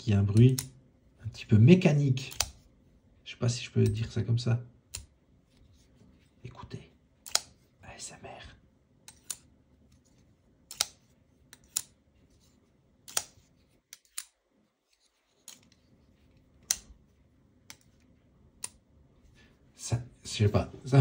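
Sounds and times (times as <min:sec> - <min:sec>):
folding knife clicking: 0:02.2 - 0:02.6, 0:07.2 - 0:07.5, 0:09.1 - 0:09.5, 0:10.7 - 0:12.0, 0:13.0 - 0:14.4.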